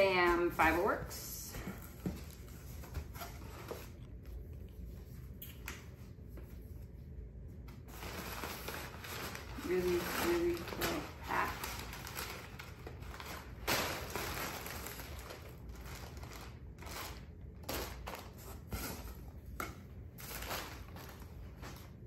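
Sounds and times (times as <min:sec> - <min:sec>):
packing paper rustling: 0:07.8 - 0:19.5, 0:20.1 - 0:22.0
plastic air-pillow wrap crinkling: 0:07.8 - 0:22.0.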